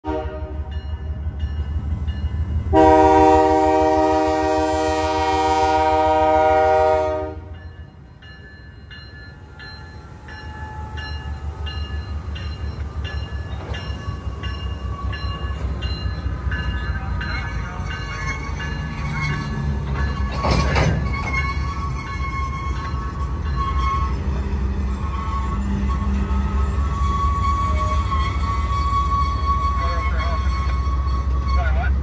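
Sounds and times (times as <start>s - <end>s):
locomotive air horn blast: 0.0s - 0.7s, 2.7s - 7.5s.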